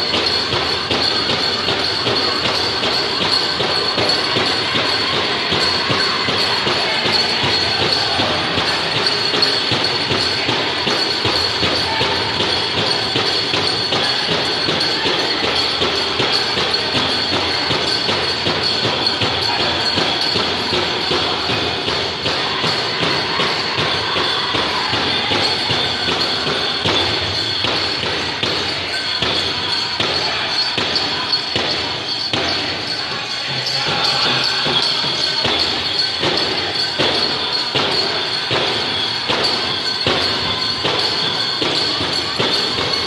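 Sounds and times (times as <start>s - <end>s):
big drum steady beat: 0.0s - 43.0s
group singing: 2.4s - 31.8s.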